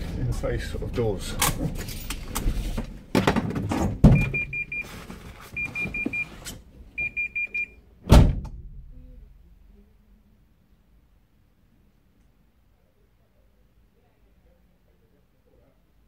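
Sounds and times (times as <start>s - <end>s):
short high warning beeps: 4.2s - 4.9s, 5.6s - 6.3s, 7.0s - 7.8s
van door clunking open: 8.0s - 8.6s
van door slamming: 8.0s - 8.7s.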